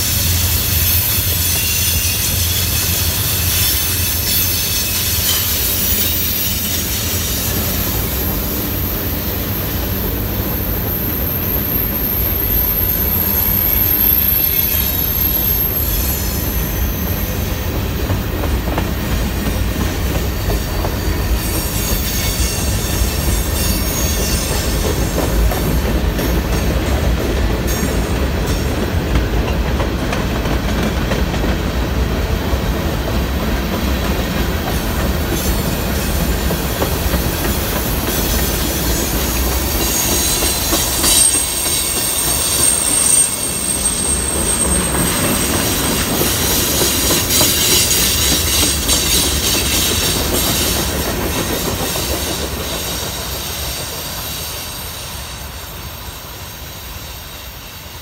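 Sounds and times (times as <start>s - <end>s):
high wheel squeal: 0.0s - 18.0s, 20.2s - 25.6s, 34.6s - 57.7s
train wheels rumbling on rail: 0.0s - 58.0s
wheels clacking over rail joints: 44.7s - 53.5s.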